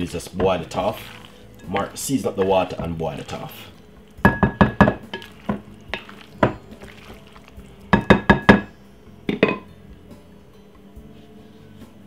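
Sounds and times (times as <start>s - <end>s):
spoon clinking against glass bowl: 0.4s - 2.1s, 4.2s - 7.3s, 7.9s - 8.7s.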